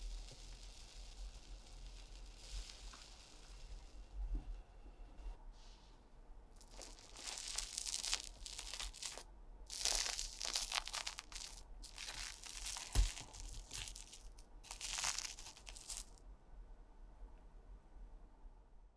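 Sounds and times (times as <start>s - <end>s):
omelette crackling and tearing: 6.6s - 16.2s.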